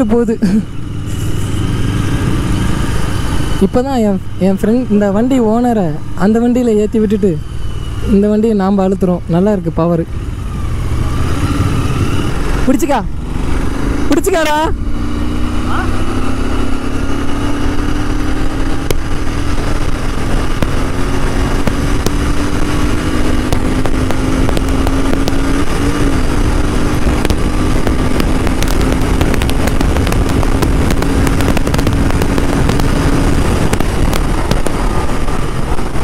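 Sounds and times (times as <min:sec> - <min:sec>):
motorcycle engine pulling at speed: 0:00.0 - 0:36.0
wind rush on microphone: 0:10.1 - 0:36.0.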